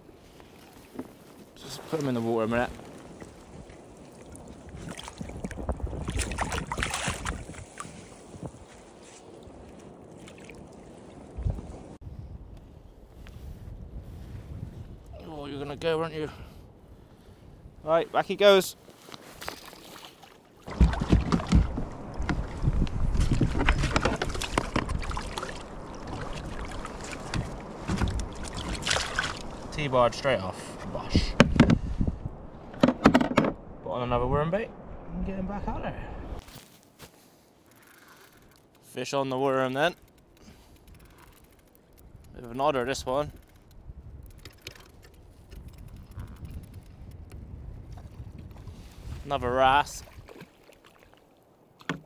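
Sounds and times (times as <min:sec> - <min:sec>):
water splashing and sloshing: 0:00.0 - 0:12.0, 0:18.8 - 0:30.0, 0:42.9 - 0:47.2, 0:47.8 - 0:52.0
wind rumble on microphone: 0:02.4 - 0:17.9, 0:20.7 - 0:36.4, 0:42.0 - 0:50.4.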